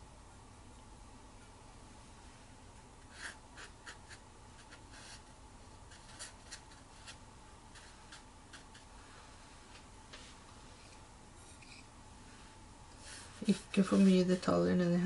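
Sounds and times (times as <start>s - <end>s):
paintbrush stroking on paper: 3.1s - 5.3s, 5.9s - 14.2s.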